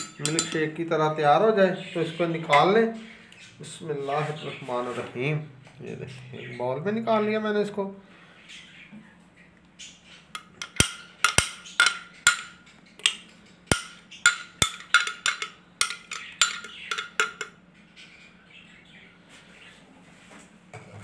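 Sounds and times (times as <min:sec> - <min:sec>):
kitchenware tapping: 0:00.0 - 0:00.8, 0:10.4 - 0:17.6.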